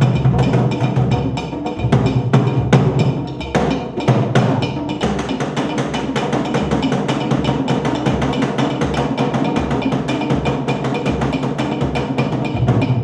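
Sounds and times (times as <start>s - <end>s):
fast steady percussion: 0.0s - 13.0s.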